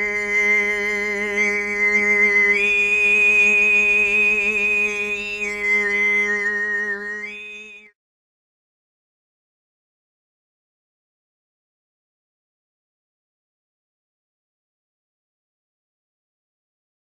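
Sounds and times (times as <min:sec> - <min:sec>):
overtone throat singing: 0:00.0 - 0:07.9.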